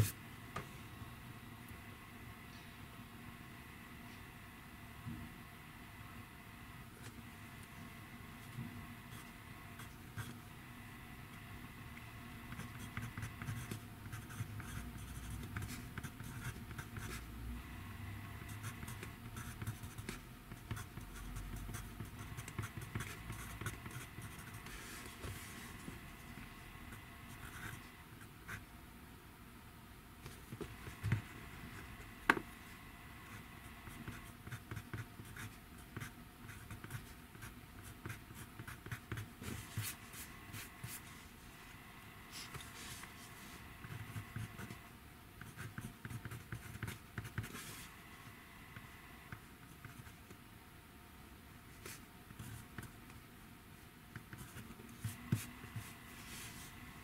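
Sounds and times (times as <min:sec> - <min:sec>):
pen scratching on paper: 0:12.4 - 0:17.2, 0:18.2 - 0:26.3, 0:33.2 - 0:41.1, 0:45.4 - 0:47.9.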